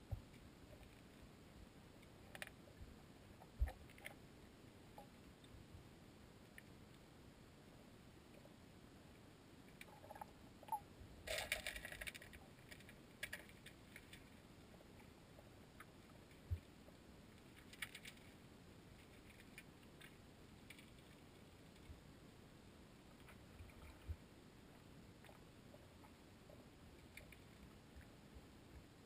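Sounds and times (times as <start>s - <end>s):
faint underwater clicks and ticks: 0.0s - 29.0s
crackling: 9.6s - 22.0s, 26.9s - 28.2s.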